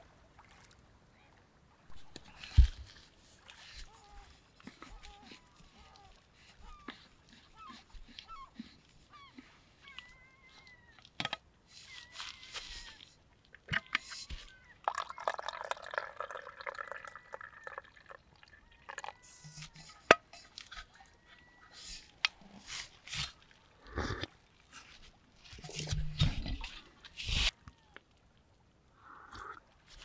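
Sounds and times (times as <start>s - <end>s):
drink pouring into metal cup: 14.8s - 18.2s.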